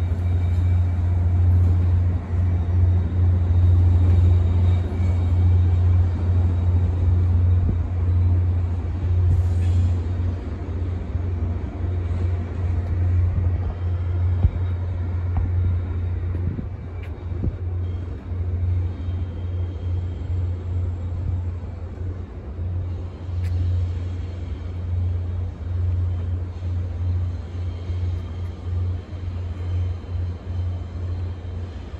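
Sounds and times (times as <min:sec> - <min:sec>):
diesel train engine rumbling: 0:00.0 - 0:31.9.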